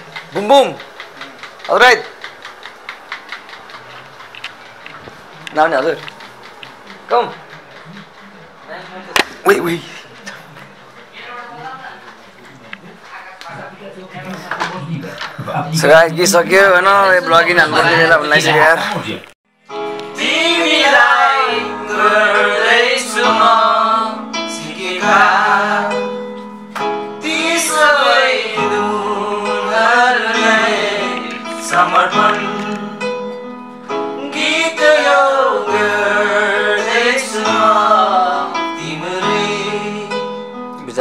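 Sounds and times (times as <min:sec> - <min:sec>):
person singing: 0:27.2 - 0:33.4, 0:34.2 - 0:40.5.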